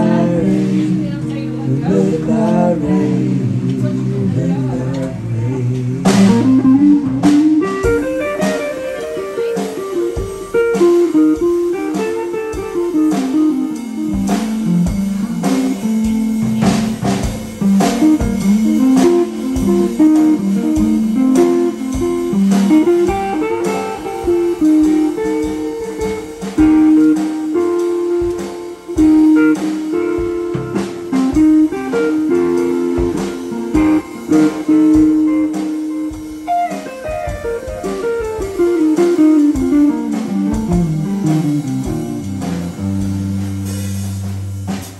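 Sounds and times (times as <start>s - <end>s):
drum kit keeping time: 0.0s - 44.9s
electric guitar blues lead: 0.0s - 44.9s.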